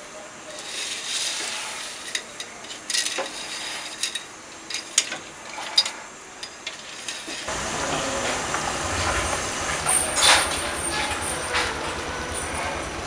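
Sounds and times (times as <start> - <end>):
metal utensil scraping a pot: 0.5 - 7.5.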